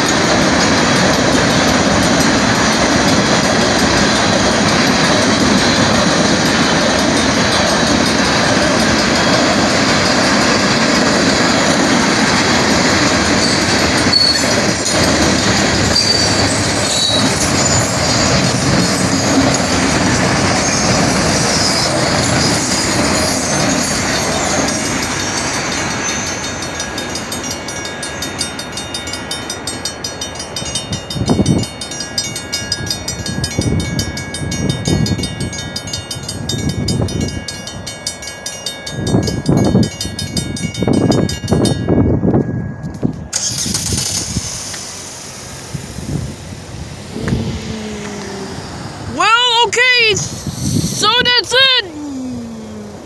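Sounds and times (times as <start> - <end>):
crossing bells ringing: 0.0 - 44.1, 51.0 - 51.9
freight train rumbling past: 0.0 - 53.0
car approaching: 46.8 - 49.2.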